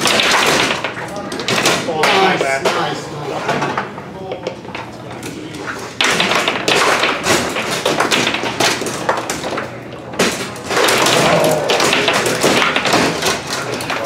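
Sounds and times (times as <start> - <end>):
foosball rods and ball clacking: 0.0 - 14.0.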